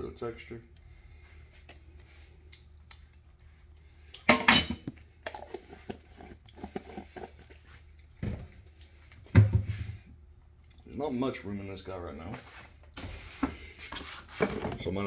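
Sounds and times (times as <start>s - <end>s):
kitchenware clatter: 4.3s - 5.5s.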